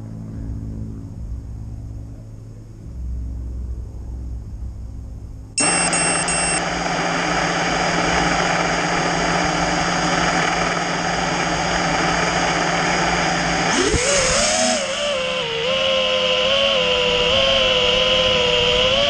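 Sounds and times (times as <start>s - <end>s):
drone propellers whirring: 5.6s - 19.0s
high electronic whine: 5.6s - 19.0s.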